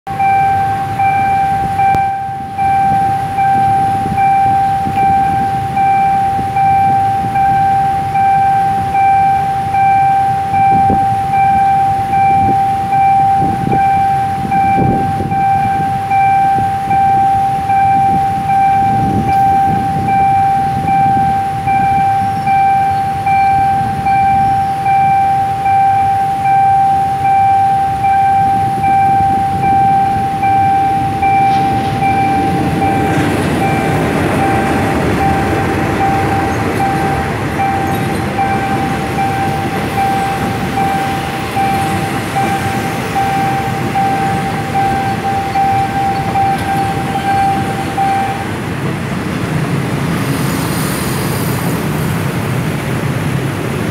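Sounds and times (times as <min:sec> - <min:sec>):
level crossing alarm pulsing: 0:00.1 - 0:49.1
motorcycles idling: 0:00.1 - 0:53.9.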